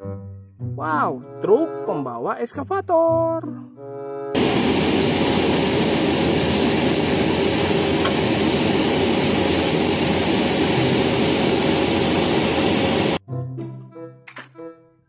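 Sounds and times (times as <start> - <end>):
faint high steady whine: 4.4 - 13.2.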